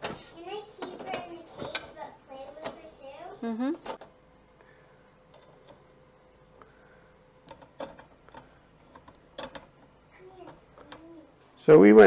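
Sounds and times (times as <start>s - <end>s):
metal wall mount clicking and knocking: 7.4s - 9.8s.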